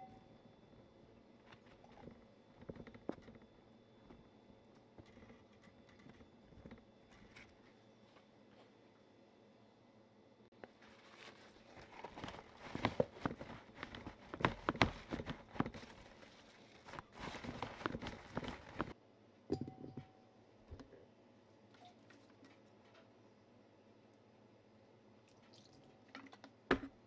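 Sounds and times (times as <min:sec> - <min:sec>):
paper towel crinkling: 0:10.6 - 0:19.0.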